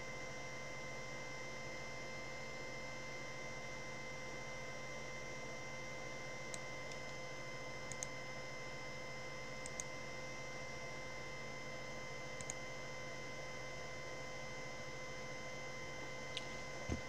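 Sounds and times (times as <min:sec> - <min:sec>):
electrical hum: 0:00.0 - 0:17.0
computer mouse clicks: 0:07.9 - 0:08.2, 0:09.6 - 0:09.9, 0:12.4 - 0:12.6.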